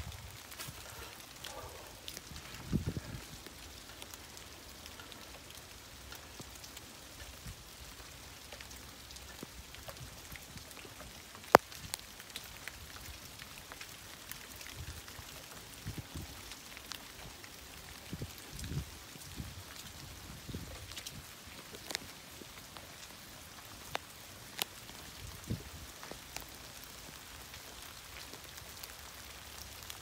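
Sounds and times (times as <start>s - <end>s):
rain drops ticking: 0.0s - 30.0s
soft steady rain hiss: 0.0s - 30.0s.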